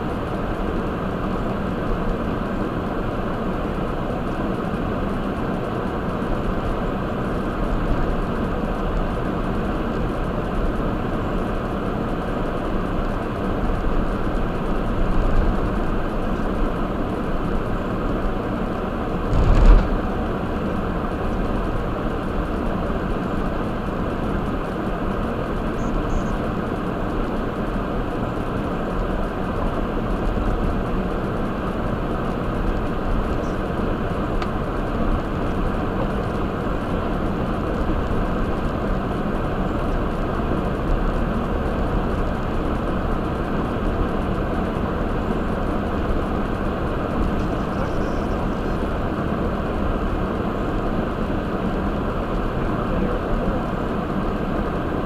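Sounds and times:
tyre noise on wet road: 19.1 - 21.8
wheels thumping over rail crossing: 19.2 - 20.6.

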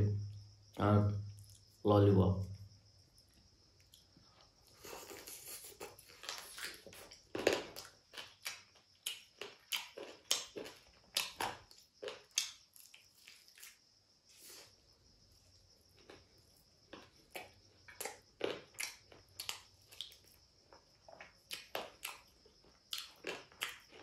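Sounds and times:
person chewing crispy food: 3.9 - 13.8, 15.8 - 24.0.

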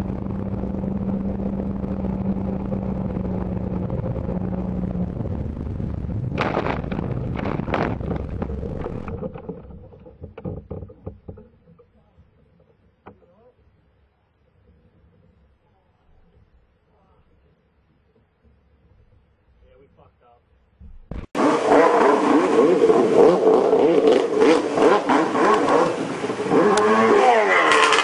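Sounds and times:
jet ski engine running: 0.0 - 9.4, 21.4 - 28.0
wind buffeting microphone: 0.0 - 9.9
crashing into tree branches: 6.4 - 9.2.

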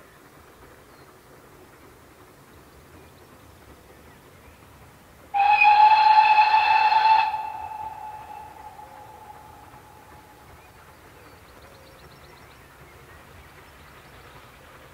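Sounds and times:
steam locomotive whistle: 5.3 - 10.4.

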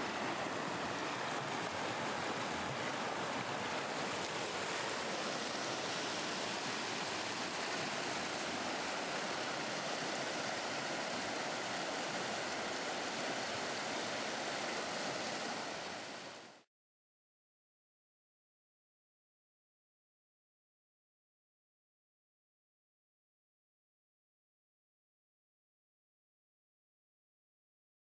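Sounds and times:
river rushing over rocks: 0.0 - 16.6.

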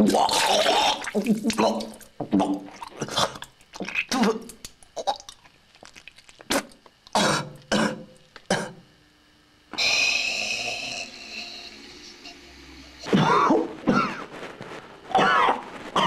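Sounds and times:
person retching and coughing: 0.0 - 5.3, 6.4 - 8.8, 13.0 - 14.3, 15.1 - 16.0
steady hissing rush: 9.7 - 16.0.

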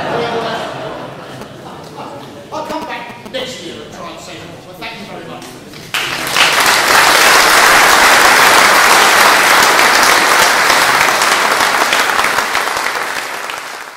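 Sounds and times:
audience applauding: 5.8 - 13.9.

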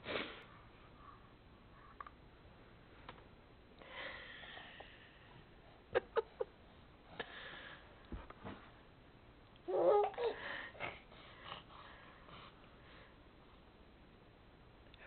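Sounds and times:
baby babbling: 9.7 - 10.4.

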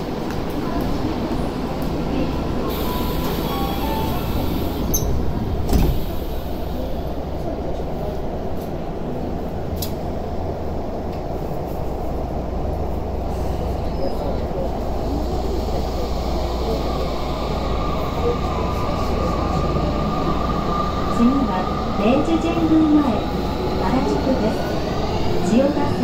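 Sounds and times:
stopped train humming: 0.0 - 26.0
train doors thumping shut: 3.2 - 6.3
click: 9.8 - 10.0.

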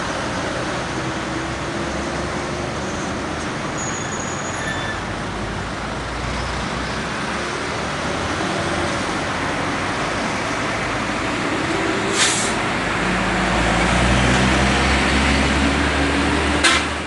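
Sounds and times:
truck engine and tyres rumbling: 0.0 - 17.0
cars passing: 5.0 - 17.0.

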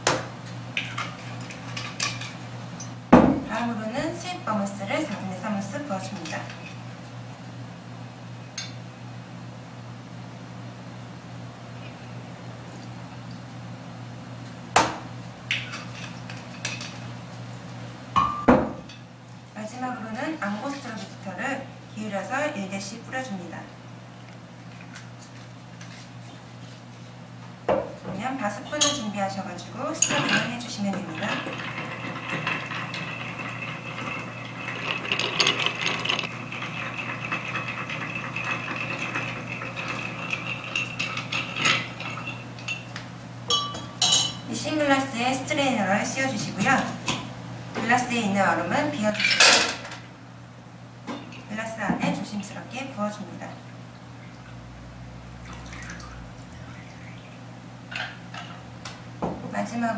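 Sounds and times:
bar tools clinking on glass: 43.5 - 44.4.

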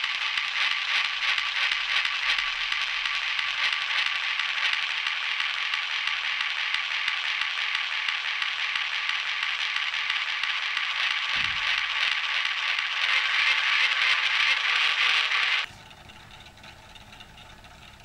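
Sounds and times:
phonograph surface hiss and crackle: 0.0 - 18.0.

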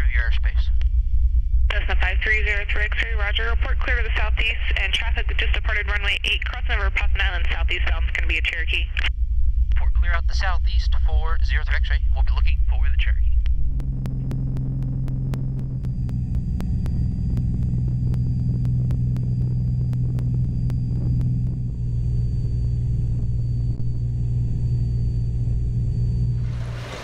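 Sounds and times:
propeller plane engine droning: 1.0 - 27.0
faint regular ticks: 13.4 - 25.2.

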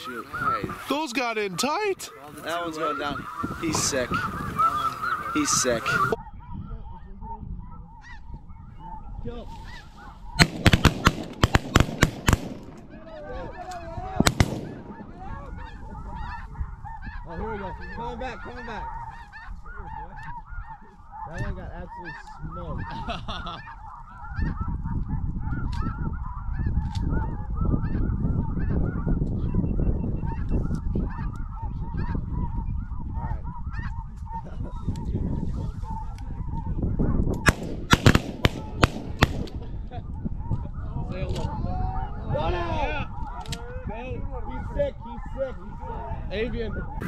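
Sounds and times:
flock of geese calling: 0.0 - 47.0
shotgun shot: 10.4 - 12.8, 14.2 - 15.1, 37.4 - 39.6.

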